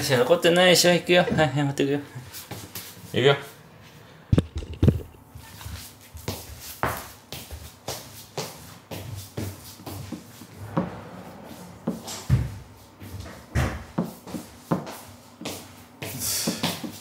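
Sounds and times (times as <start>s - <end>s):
knocks and thumps indoors: 9.4s - 14.9s
heavy low thump: 10.6s - 12.8s.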